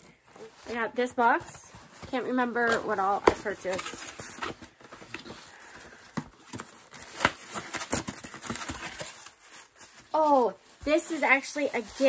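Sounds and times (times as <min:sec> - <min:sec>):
items tapping in cardboard box: 0:05.9 - 0:09.2.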